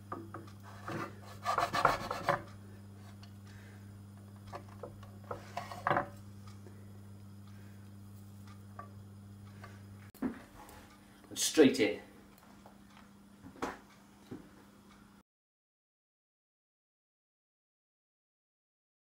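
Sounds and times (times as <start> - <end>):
steady low hum: 0.0 - 15.2
knife scraping on wooden board: 0.6 - 3.2, 5.3 - 6.1.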